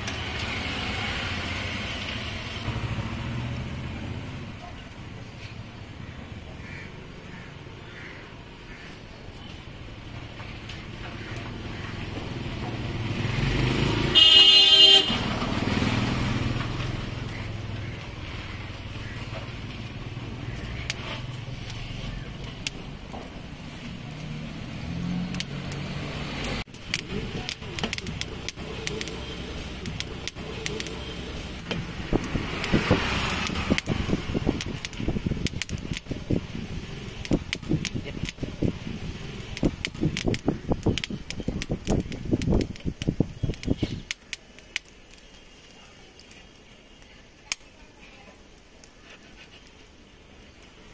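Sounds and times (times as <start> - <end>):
street traffic: 0.0 - 50.9
car horn blast: 14.2 - 15.2
rapid crackling and clicking: 18.9 - 25.8, 26.4 - 50.9.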